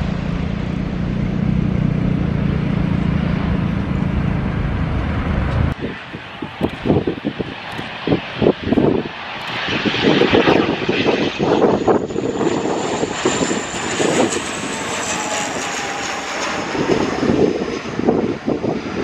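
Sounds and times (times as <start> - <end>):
gusty wind on microphone: 0.0 - 19.0
turboprop airliner engines whining: 0.0 - 19.0.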